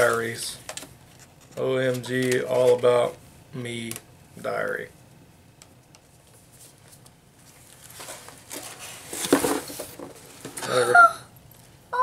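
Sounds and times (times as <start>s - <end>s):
book pages rustling and flipping: 6.0s - 10.6s.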